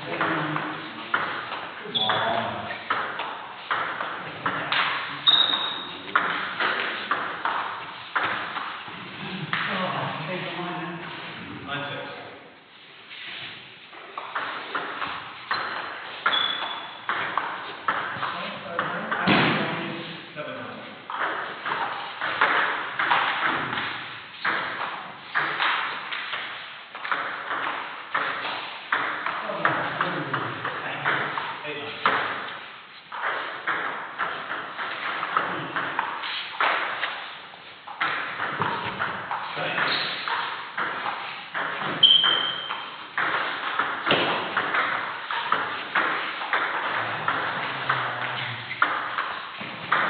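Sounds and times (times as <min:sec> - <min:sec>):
brief high squeak: 0:05.2 - 0:06.0, 0:16.3 - 0:17.0, 0:42.0 - 0:42.7.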